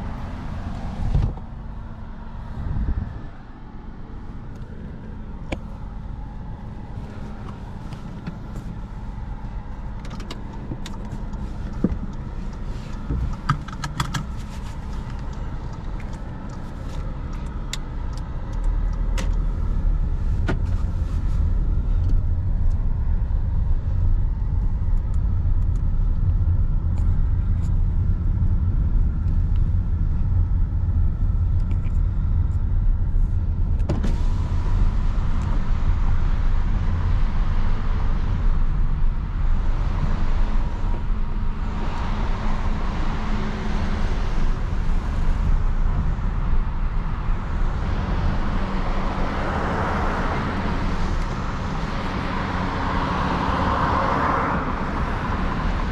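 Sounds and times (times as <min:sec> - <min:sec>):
car engine and road rumble: 0:00.0 - 0:55.9
sharp clicks and knocks: 0:09.9 - 0:19.5.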